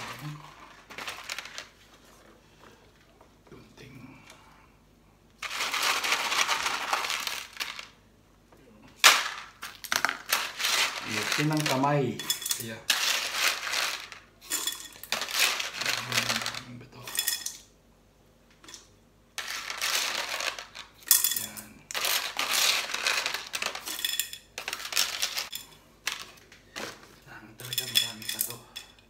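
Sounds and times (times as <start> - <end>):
pebbles clattering against glass: 0.0 - 1.8, 5.4 - 8.0, 9.0 - 17.7, 18.6 - 26.4, 27.6 - 28.9.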